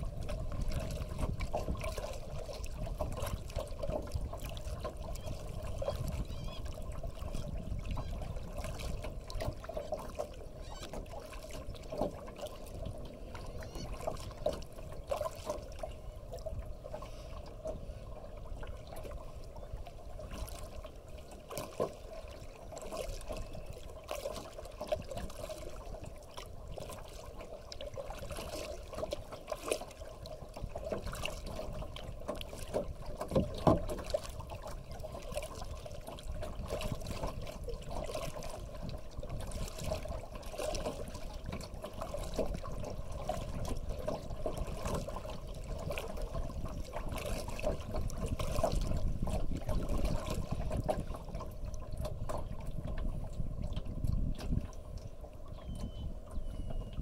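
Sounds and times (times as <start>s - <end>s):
water drips and splashes: 0.0s - 16.6s, 20.2s - 53.0s
water lapping against hull: 0.0s - 57.0s.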